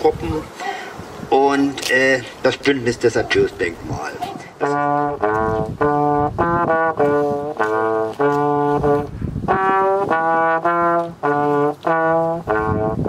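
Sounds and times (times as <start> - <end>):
solo trombone melody: 4.5 - 13.0.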